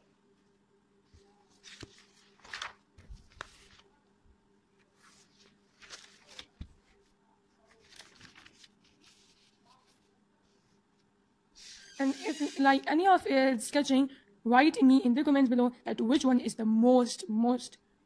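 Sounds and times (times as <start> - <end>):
faint steady hum: 0.0 - 18.0
paper pages rustling: 1.1 - 4.0, 4.8 - 10.8.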